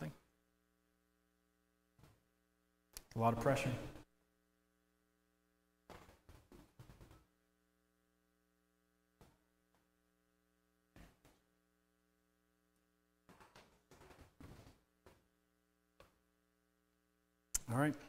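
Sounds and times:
faint electrical mains hum: 0.0s - 18.0s.

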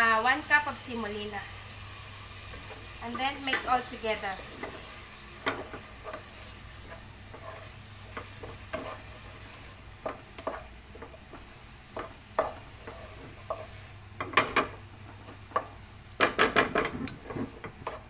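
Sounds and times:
wooden spoon scraping a pot: 2.4s - 14.4s, 16.4s - 18.0s.

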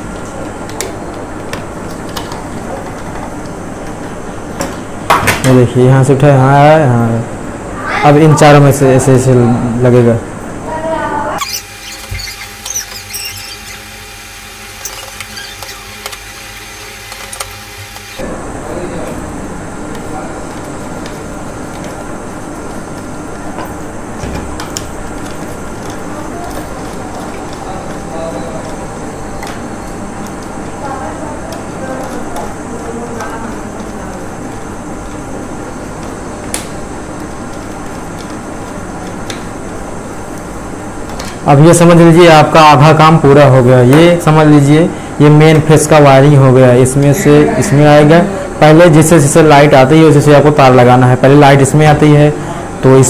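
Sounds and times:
short high squeaks: 11.4s - 14.2s, 14.8s - 16.9s.

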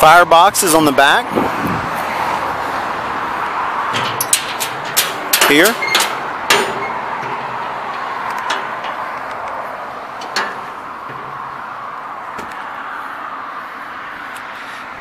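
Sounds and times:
steady background noise: 0.0s - 15.0s
sharp metal clicks: 3.9s - 11.3s.

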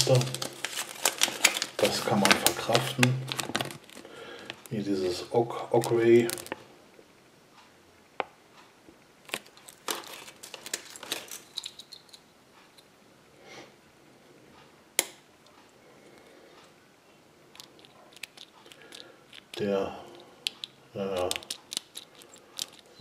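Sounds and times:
paper crinkling: 0.0s - 4.8s, 5.7s - 6.6s, 9.2s - 12.0s, 17.6s - 23.0s
small plastic clicks: 20.4s - 23.0s.

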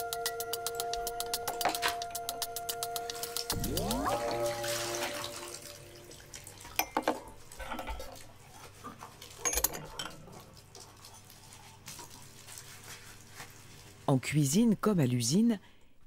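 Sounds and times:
music tones: 0.0s - 6.4s
dishes and cutlery clinking: 6.8s - 8.2s, 9.2s - 10.5s.

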